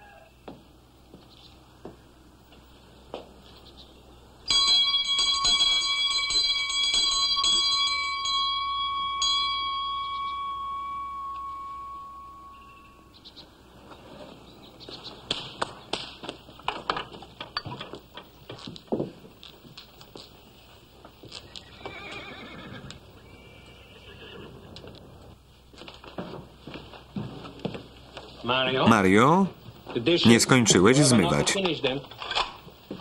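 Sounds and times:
bell ringing: 0:04.5 - 0:13.3.

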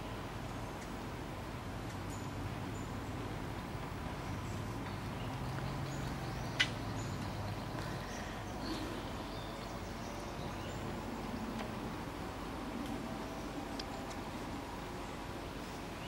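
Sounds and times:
birds chirping: 0:00.0 - 0:16.0
faint steady hum: 0:00.0 - 0:16.0.

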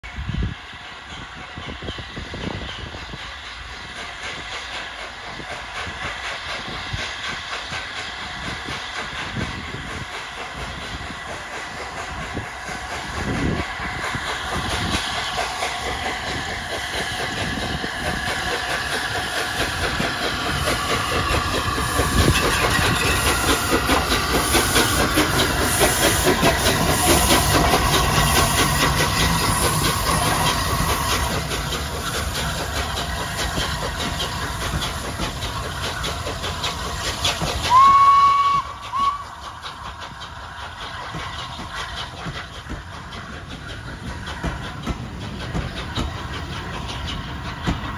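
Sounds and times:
steam hissing: 0:00.1 - 0:47.9
train whistle toots: 0:37.6 - 0:39.4.

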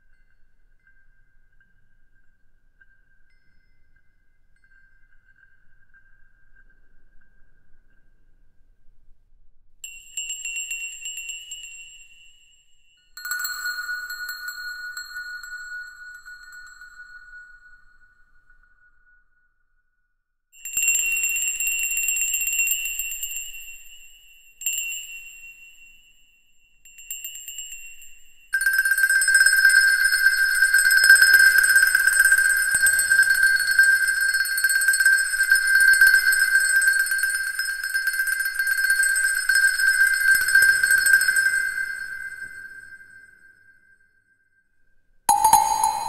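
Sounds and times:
steady high ringing tone: 0:20.6 - 0:44.3, 0:45.3 - 0:46.0
high struck chimes: 0:45.3 - 0:46.0.

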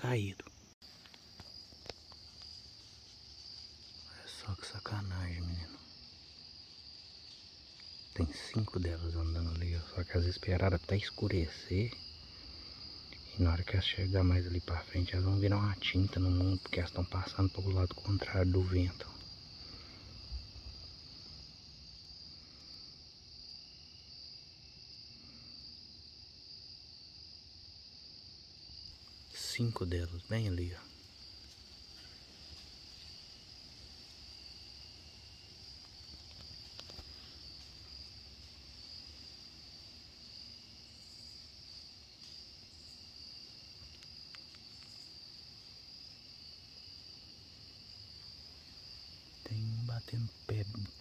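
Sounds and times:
night insects chirping: 0:00.0 - 0:51.0
faint clicks: 0:35.7 - 0:38.5, 0:43.8 - 0:45.2.

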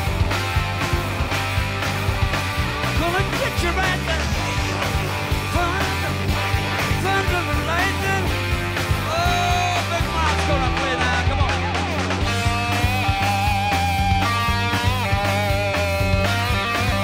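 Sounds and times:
bass guitar: 0:00.0 - 0:17.0
distorted electric guitar: 0:00.0 - 0:17.0
drums: 0:00.0 - 0:17.0
man singing: 0:03.0 - 0:13.4.

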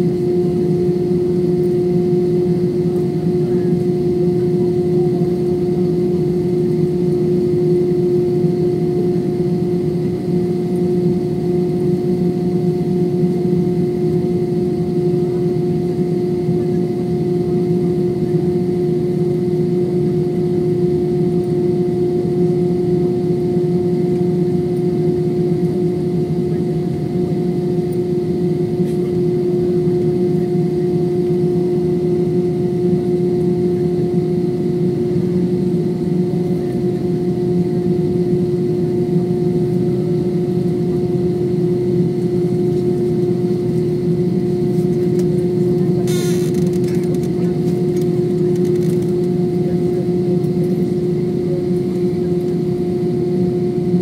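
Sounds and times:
jet engines idling hum: 0:00.0 - 0:54.0.

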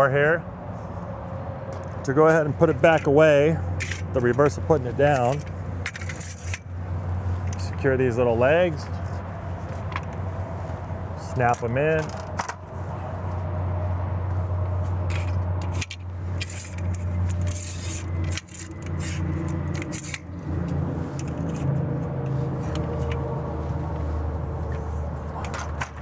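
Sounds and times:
metal clicks and rattles: 0:03.8 - 0:06.7, 0:15.1 - 0:21.8.

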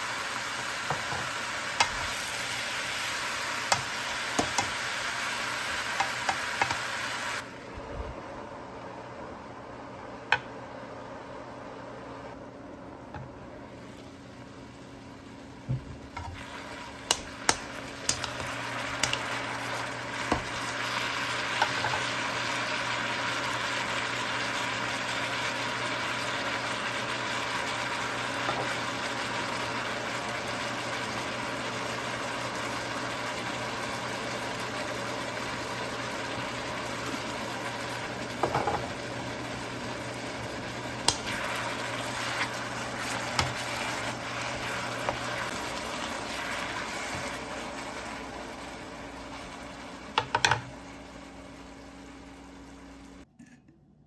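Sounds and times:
mushrooms sizzling in a frying pan: 0:00.0 - 0:07.7, 0:13.1 - 0:53.2
utensil tapping on pan: 0:03.7 - 0:04.7, 0:06.0 - 0:06.8, 0:17.1 - 0:19.2, 0:50.2 - 0:50.7.

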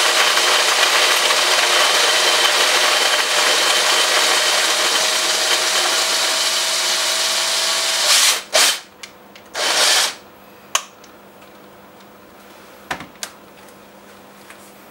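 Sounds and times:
coffee grinder whirring: 0:00.0 - 0:08.9, 0:09.6 - 0:10.2
drill bursts: 0:00.0 - 0:08.9, 0:09.6 - 0:10.2.

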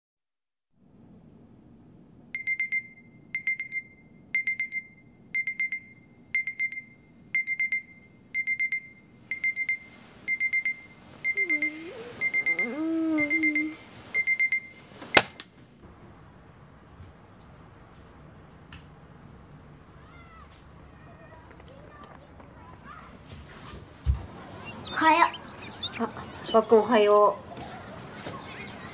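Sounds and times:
alarm clock beeping: 0:02.4 - 0:15.4.

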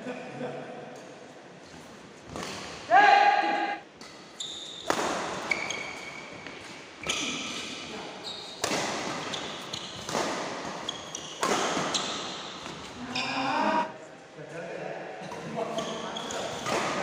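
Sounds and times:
shoes squeaking on court: 0:04.0 - 0:13.5, 0:15.7 - 0:17.0
badminton racket hits: 0:08.6 - 0:12.7.

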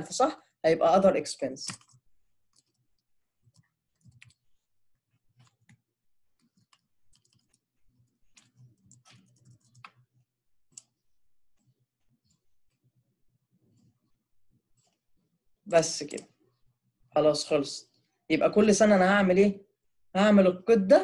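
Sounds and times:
computer keyboard typing: 0:01.6 - 0:11.0
mouse clicks: 0:10.7 - 0:11.0.

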